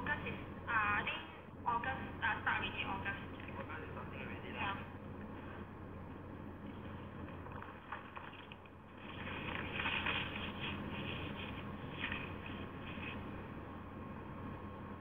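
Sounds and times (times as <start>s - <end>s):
recording hum and hiss: 0.0s - 15.0s
scratchy rustling: 6.6s - 13.5s.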